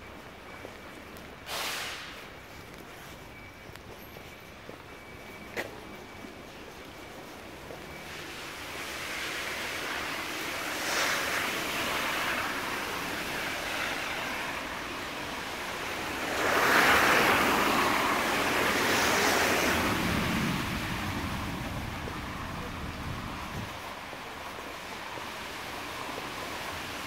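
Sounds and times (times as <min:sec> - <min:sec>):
rain hissing on pavement and cars: 0:01.4 - 0:02.4, 0:07.9 - 0:27.0.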